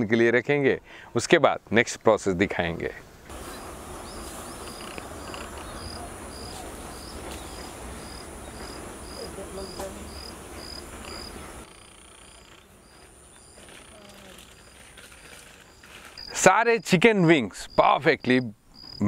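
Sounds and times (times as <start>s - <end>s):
crickets chirping: 3.3s - 19.0s
high insect trill: 3.3s - 19.0s.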